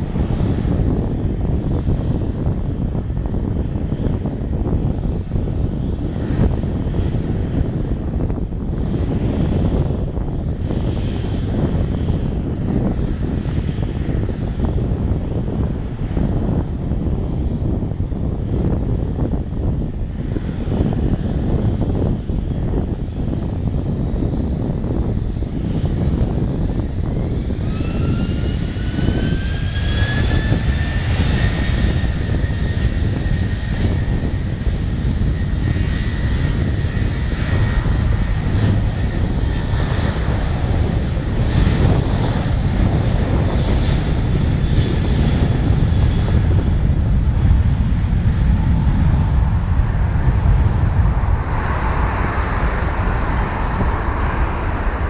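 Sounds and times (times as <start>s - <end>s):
jet engines spooling up: 18.4s - 55.0s.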